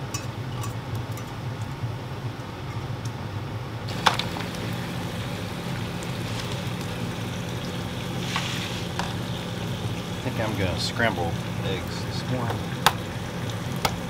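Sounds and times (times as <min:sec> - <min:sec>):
low even hum: 0:00.0 - 0:14.0
bacon sizzling and popping: 0:03.9 - 0:14.0.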